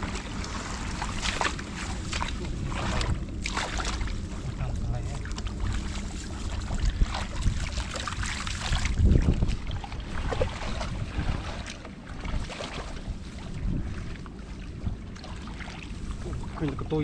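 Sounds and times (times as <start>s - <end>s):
hands splashing in muddy water: 0.0s - 4.2s
wind rumbling on microphone: 0.0s - 17.0s.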